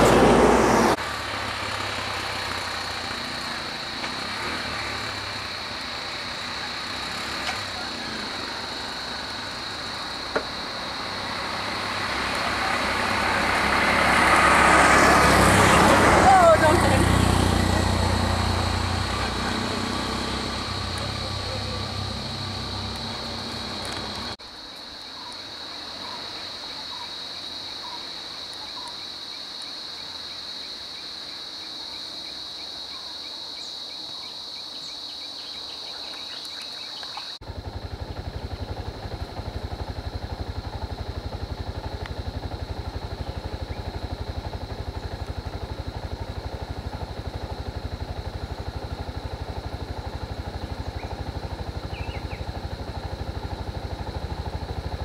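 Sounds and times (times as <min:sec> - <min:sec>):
vehicle engines idling: 0:00.0 - 0:24.4, 0:37.0 - 0:55.0
insects droning: 0:00.0 - 0:55.0
bird chirps: 0:51.9 - 0:52.5.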